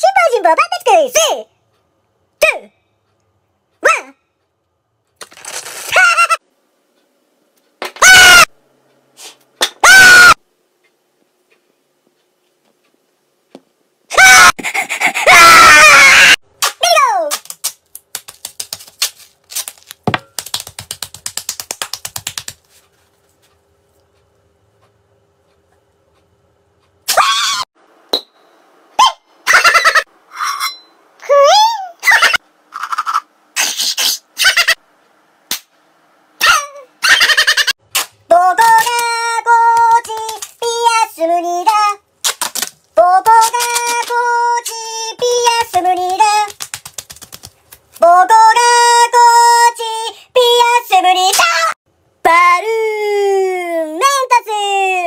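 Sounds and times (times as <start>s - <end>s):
tape pulled off a roll: 5.2s - 6.2s.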